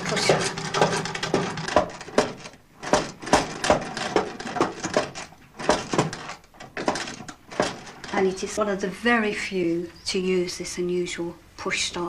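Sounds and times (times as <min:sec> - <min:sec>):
hand sewing machine clacking: 0:00.0 - 0:08.6.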